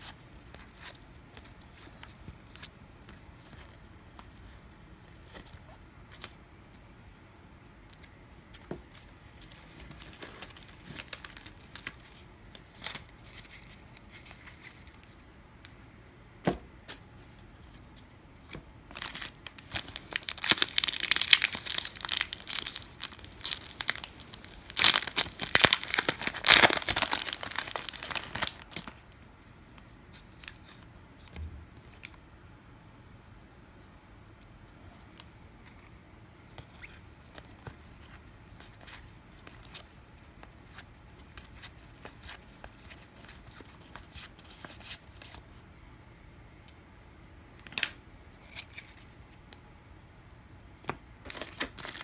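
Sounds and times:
wrapper crinkling loudly: 0:19.0 - 0:28.7.

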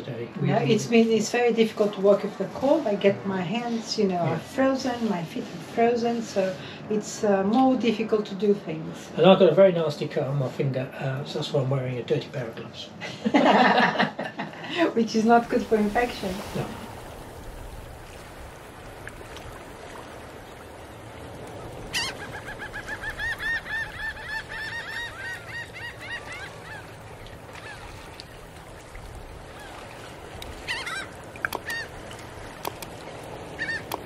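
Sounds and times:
steady low background noise: 0:00.0 - 0:33.8
birds honking: 0:21.5 - 0:28.5, 0:29.5 - 0:32.8, 0:33.4 - 0:34.0.

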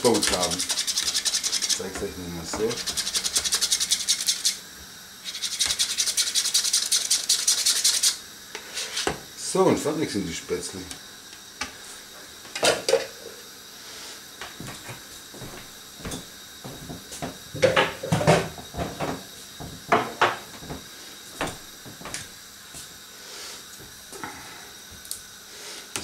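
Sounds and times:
kitchen utensils clattering: 0:17.6 - 0:19.2.

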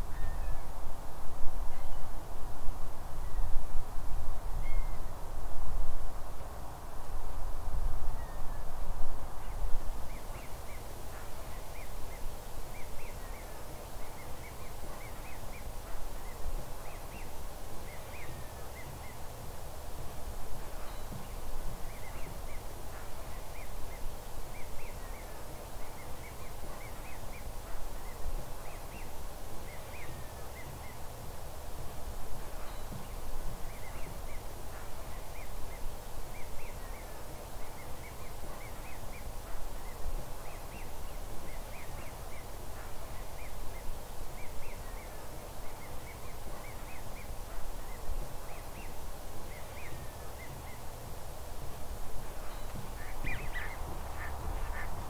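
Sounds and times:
distant waterfowl calling: 0:52.3 - 0:55.0.

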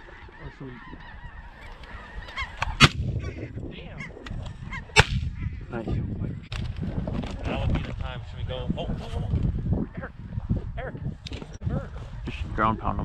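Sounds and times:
geese honking: 0:00.0 - 0:05.8.

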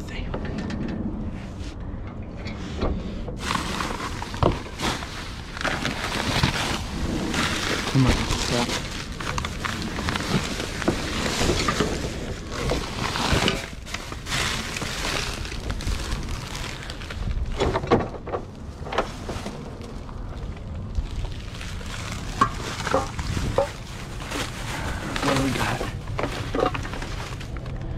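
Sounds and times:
plastic bags rustling and crinkling: 0:03.4 - 0:27.9
crackles and knocks from handling: 0:07.7 - 0:24.5, 0:26.1 - 0:27.9.

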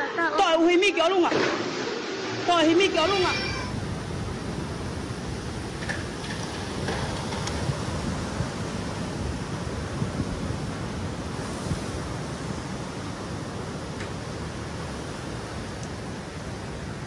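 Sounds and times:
churning seawater rushing: 0:00.5 - 0:17.0.

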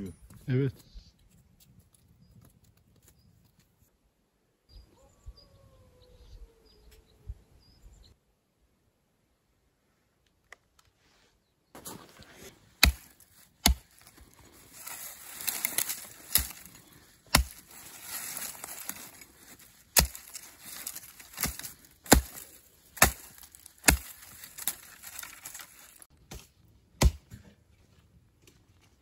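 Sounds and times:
twigs crackling and rustling: 0:01.1 - 0:03.9, 0:11.8 - 0:26.1
hatchet chopping branches: 0:12.8 - 0:27.4.

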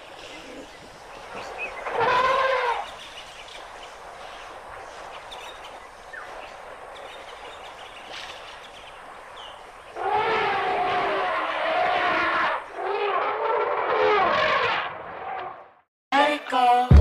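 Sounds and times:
outdoor background hiss: 0:00.0 - 0:12.9.

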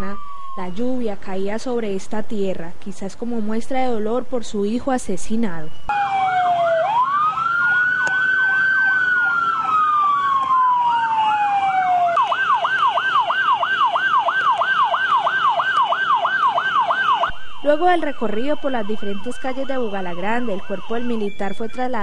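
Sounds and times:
siren wailing: 0:00.0 - 0:01.0, 0:05.7 - 0:22.0
siren yelping: 0:00.0 - 0:01.0, 0:05.8 - 0:22.0.

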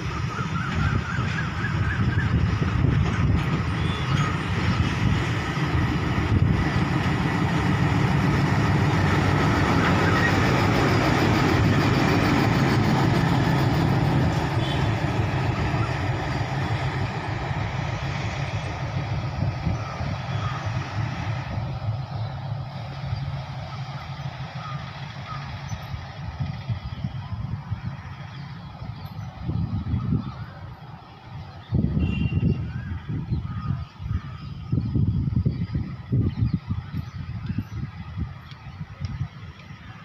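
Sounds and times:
train wagons clattering on rails: 0:00.0 - 0:19.5
diesel locomotive engine rumble: 0:00.0 - 0:40.0.

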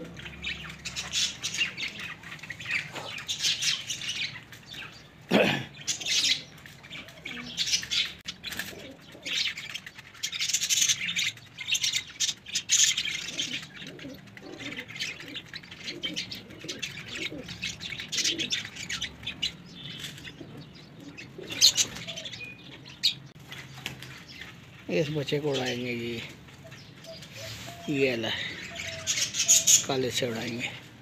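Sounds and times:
birds chirping: 0:00.0 - 0:31.0
pigeons cooing: 0:00.0 - 0:31.0
wings flapping: 0:06.3 - 0:11.4, 0:21.4 - 0:22.3, 0:23.4 - 0:24.7.

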